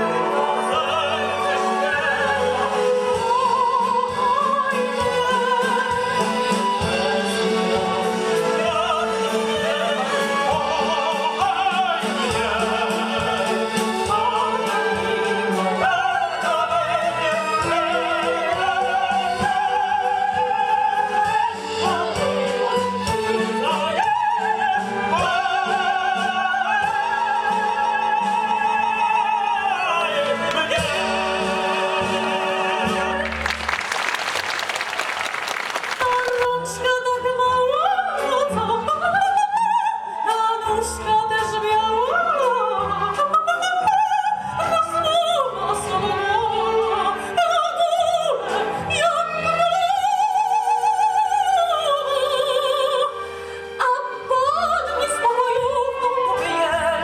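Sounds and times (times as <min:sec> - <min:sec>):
tenor and soprano singing: 0:00.0 - 0:34.0, 0:34.9 - 0:57.0
symphony orchestra: 0:00.0 - 0:57.0
audience applause: 0:33.1 - 0:36.5.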